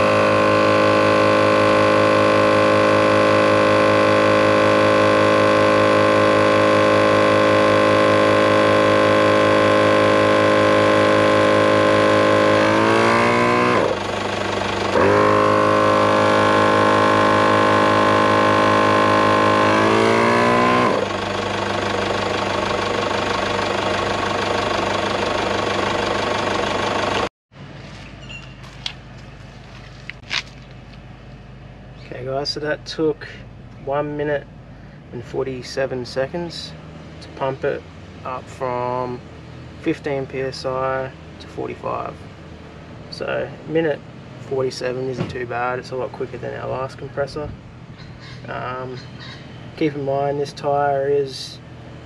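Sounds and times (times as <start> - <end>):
air compressor running: 0.0 - 27.3.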